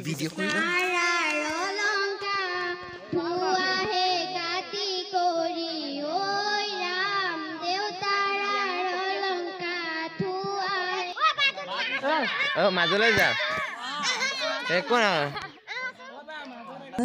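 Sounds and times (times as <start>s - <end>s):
girl singing into microphone: 0.4s - 11.3s.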